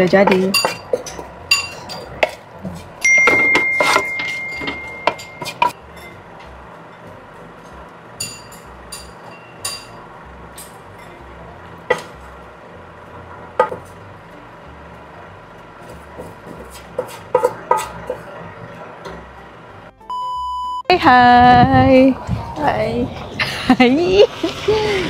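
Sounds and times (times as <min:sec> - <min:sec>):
metal utensils clinking on pans: 0:00.0 - 0:02.4, 0:03.0 - 0:06.2, 0:08.2 - 0:10.0
steady high tone: 0:03.0 - 0:07.1.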